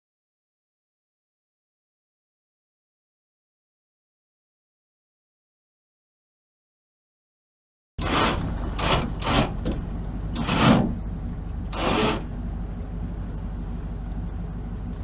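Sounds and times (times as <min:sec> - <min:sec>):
boat engine humming: 0:08.0 - 0:15.0.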